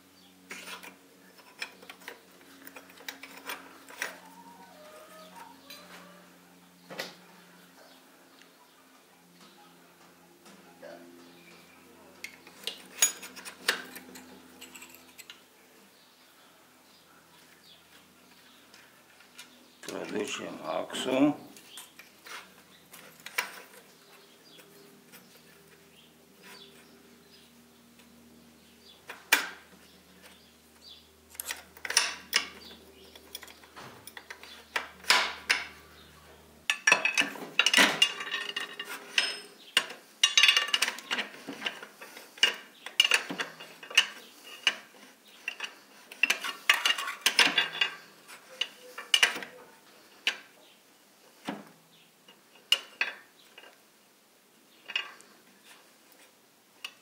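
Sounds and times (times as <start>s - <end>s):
metal parts clinking and scraping: 0.5s - 6.1s, 12.2s - 15.4s, 21.6s - 25.8s, 31.3s - 35.8s, 36.7s - 50.5s
metallic clatter and rattling: 12.4s - 15.4s, 36.7s - 49.5s.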